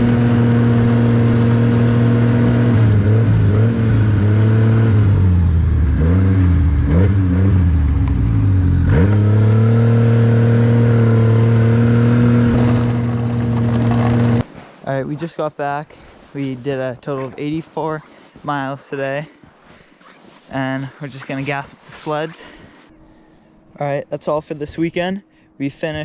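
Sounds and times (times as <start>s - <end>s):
snowmobile engine revving: 0.0s - 14.4s, 20.4s - 22.8s.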